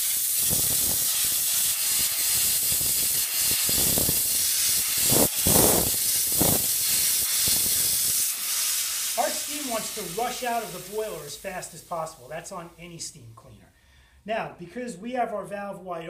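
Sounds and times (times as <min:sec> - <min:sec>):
steam hissing from nozzle: 0:00.0 - 0:12.8.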